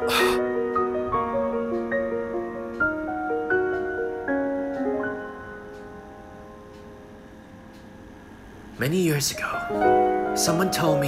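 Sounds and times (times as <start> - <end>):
soft piano melody: 0.0 - 11.0.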